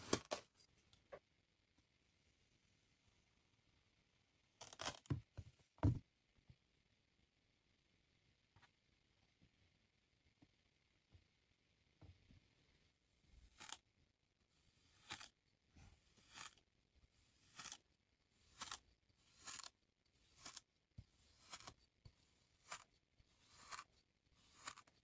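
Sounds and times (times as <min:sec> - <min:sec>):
tube cutter crunching kinetic sand: 0:13.5 - 0:13.9, 0:14.7 - 0:15.4, 0:16.0 - 0:25.0.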